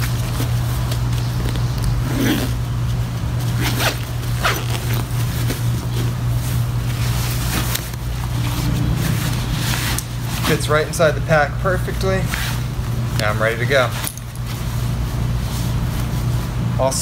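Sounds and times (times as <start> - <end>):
steady low hum: 0.0 - 17.0
nylon sack rustling: 2.0 - 10.7.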